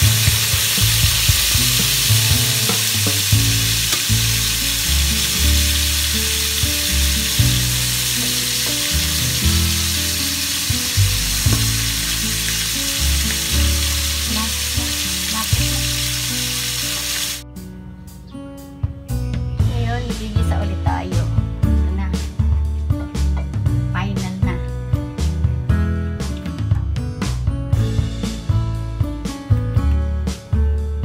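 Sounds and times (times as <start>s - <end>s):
fish sizzling in hot oil: 0.0s - 17.4s
low background music: 0.0s - 31.0s.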